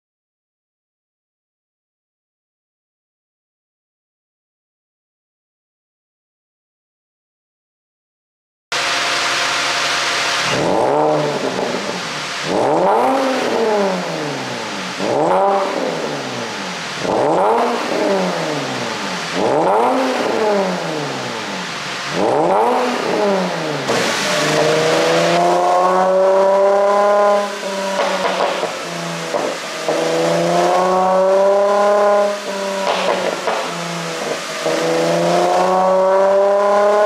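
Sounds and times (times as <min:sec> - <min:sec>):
car engine revving: 0:08.7 - 0:37.0.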